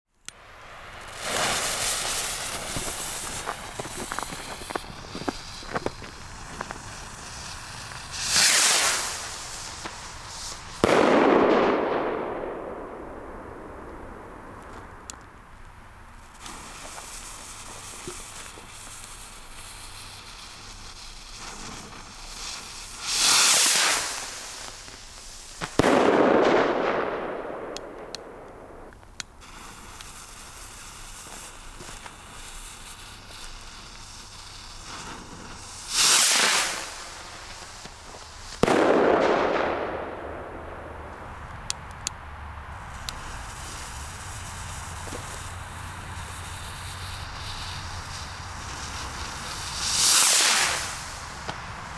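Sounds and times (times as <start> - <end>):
rocket lift-off hiss: 0.2 - 15.2, 16.1 - 42.1, 42.7 - 51.9
firework bang with rolling echo: 0.4 - 15.1, 23.1 - 28.9, 35.8 - 41.5, 42.9 - 51.8.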